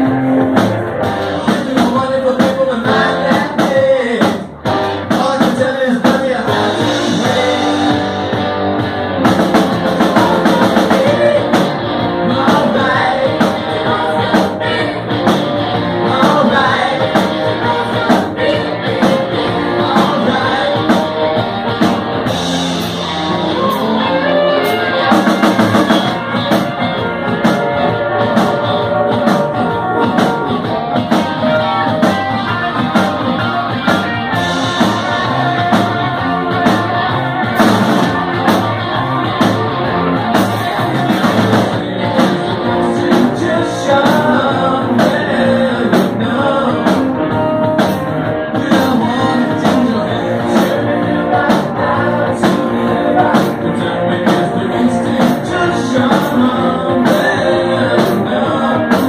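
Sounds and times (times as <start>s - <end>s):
drum kit beat: 0.0s - 59.0s
electric guitar: 0.0s - 59.0s
keyboard: 0.0s - 59.0s.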